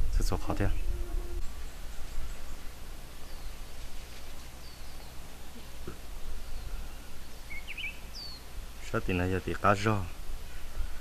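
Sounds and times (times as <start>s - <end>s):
low background hum and hiss: 0.0s - 11.0s
faint bird chirps: 0.6s - 8.5s.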